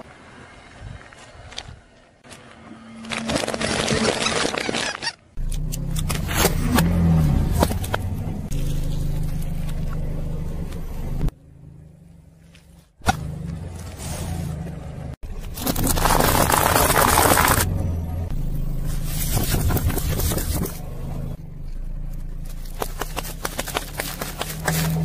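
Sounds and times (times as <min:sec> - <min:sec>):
car engine humming: 0:05.4 - 0:25.0
tyre crushing objects: 0:15.3 - 0:17.8, 0:22.5 - 0:25.0.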